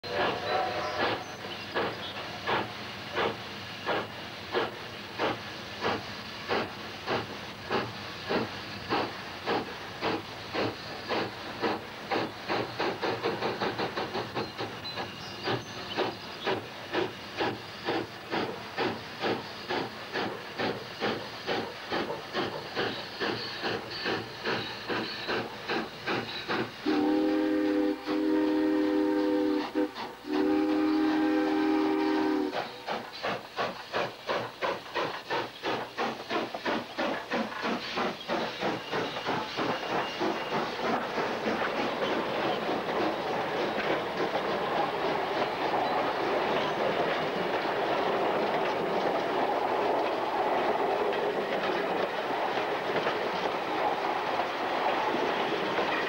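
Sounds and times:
deep chime steam whistle: 0:00.0 - 0:06.4, 0:07.1 - 0:33.4
steam locomotive exhaust chuffing: 0:00.0 - 0:56.0.

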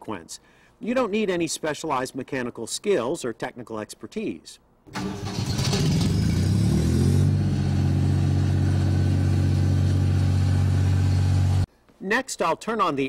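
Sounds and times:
diesel generator starting: 0:04.9 - 0:11.7.

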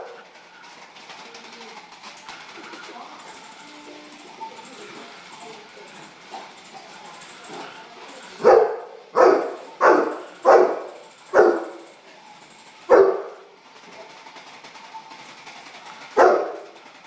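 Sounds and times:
large dog barking: 0:08.4 - 0:11.9, 0:12.9 - 0:13.5, 0:16.2 - 0:16.8.

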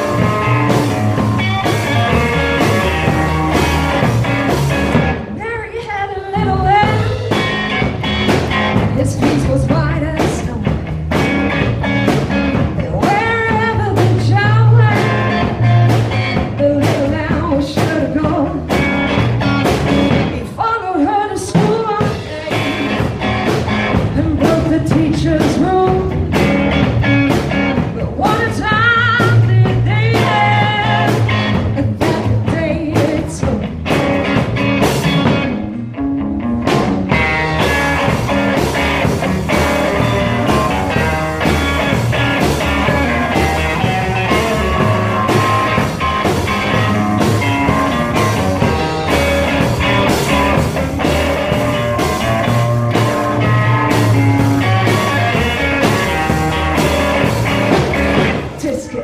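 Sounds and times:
steady drum beat: 0:00.0 - 0:05.4, 0:06.4 - 0:20.5, 0:21.4 - 0:58.8
upright double bass: 0:00.0 - 0:05.4, 0:06.4 - 0:20.4, 0:22.4 - 0:58.5
guitar: 0:00.0 - 0:59.0
person singing: 0:05.3 - 0:07.9, 0:08.8 - 0:10.9, 0:12.6 - 0:15.5, 0:20.2 - 0:23.1, 0:24.1 - 0:26.4, 0:27.8 - 0:33.8.

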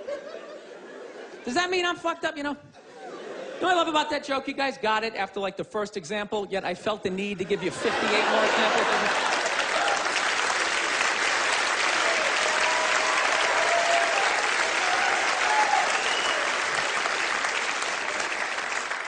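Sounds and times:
audience applauding: 0:07.8 - 0:19.0.

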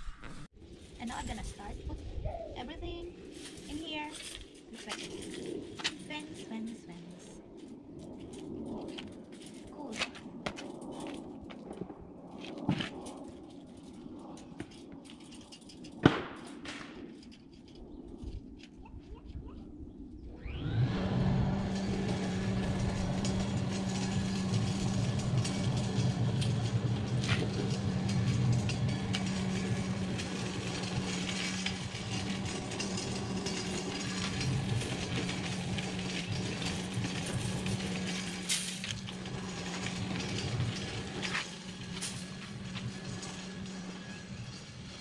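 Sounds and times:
engine starting and running: 0:20.3 - 0:45.0.

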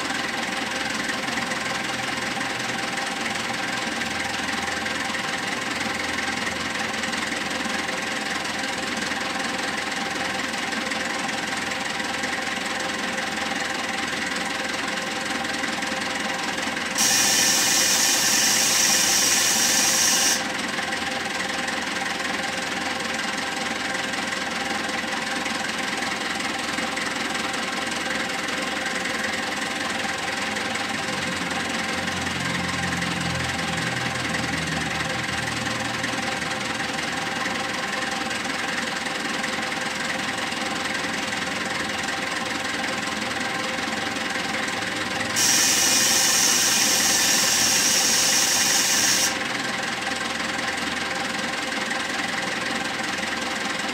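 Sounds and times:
diesel engine running: 0:00.0 - 0:53.9
loud high hiss: 0:17.0 - 0:20.4, 0:45.4 - 0:49.4.

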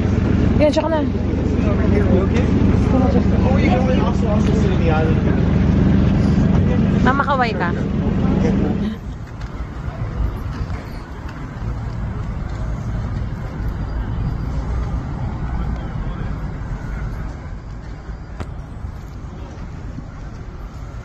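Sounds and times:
faint voices: 0:00.0 - 0:21.0
ferry engine idling: 0:00.0 - 0:21.0.

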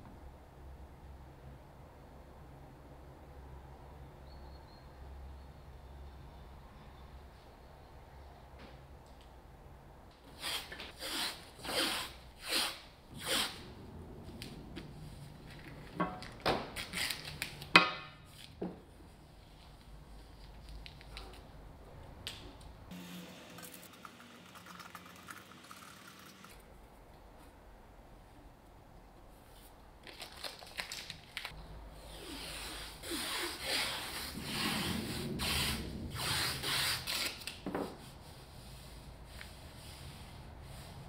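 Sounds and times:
hand rubbing tape: 0:10.4 - 0:13.6
masking tape tearing off roll: 0:10.4 - 0:13.6, 0:16.7 - 0:17.7, 0:32.1 - 0:37.6.

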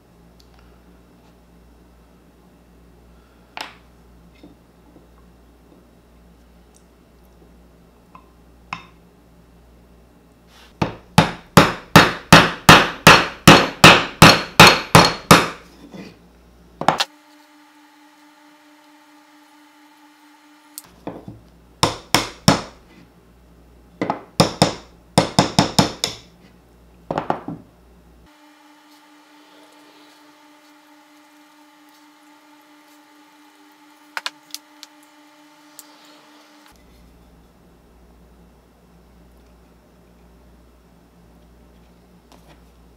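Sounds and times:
hammer striking metal: 0:10.8 - 0:15.6.

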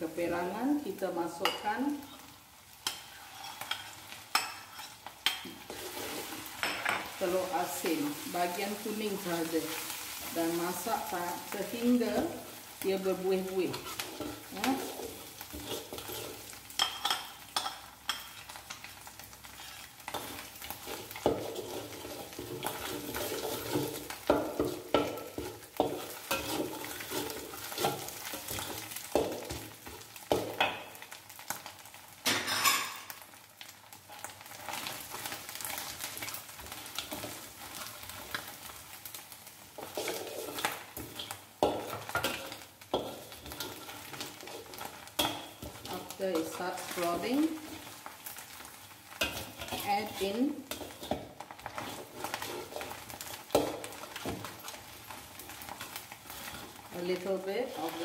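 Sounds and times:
food sizzling: 0:00.0 - 0:58.0
metal spatula scraping a wok: 0:02.8 - 0:07.0, 0:13.6 - 0:18.8, 0:19.5 - 0:30.0, 0:39.8 - 0:48.3, 0:49.1 - 0:54.8, 0:55.4 - 0:58.0.

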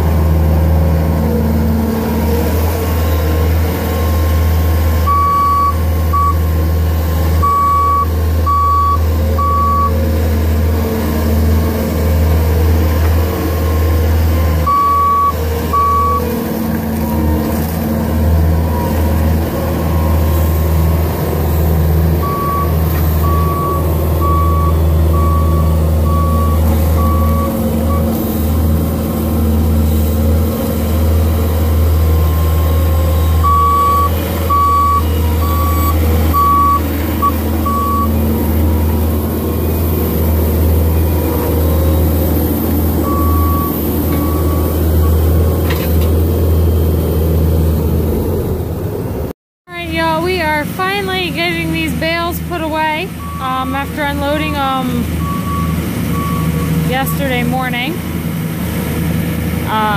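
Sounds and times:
diesel engine running: 0:00.0 - 0:59.9
reversing alarm beeping: 0:05.1 - 0:06.5, 0:07.4 - 0:10.0, 0:14.6 - 0:16.3, 0:22.2 - 0:28.2, 0:32.3 - 0:38.2, 0:43.0 - 0:45.4, 0:52.1 - 0:57.9.

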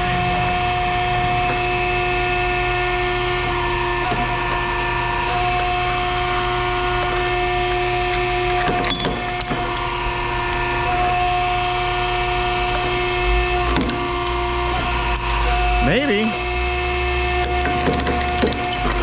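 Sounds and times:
machinery whine and hum: 0:00.0 - 0:19.0
sharp clanks: 0:08.0 - 0:09.9.

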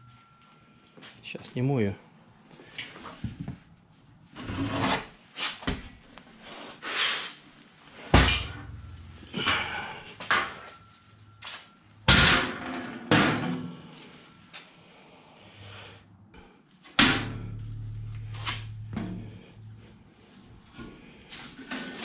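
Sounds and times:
heavy metallic knock ringing: 0:08.2 - 0:10.9, 0:17.0 - 0:19.8
steel scraping and clanking: 0:17.4 - 0:22.0.

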